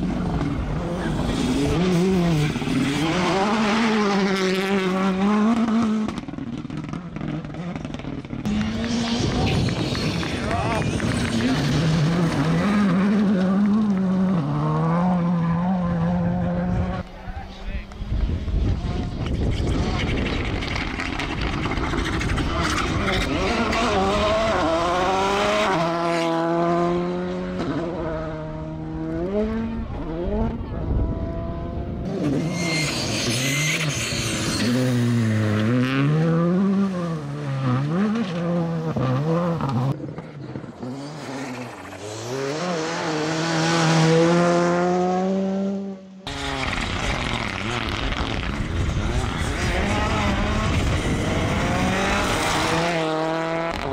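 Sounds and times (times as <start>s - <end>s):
rally car engine revving: 0.0s - 53.9s
car sliding on gravel: 8.5s - 14.4s, 46.4s - 53.9s.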